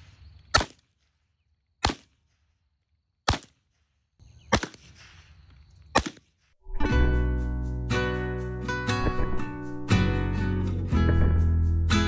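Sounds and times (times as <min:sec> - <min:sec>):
air rifle shots: 0:09.0 - 0:10.0.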